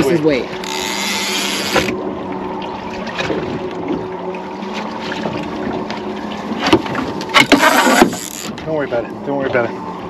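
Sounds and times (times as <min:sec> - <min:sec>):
water sloshing against hull: 0:00.0 - 0:10.0.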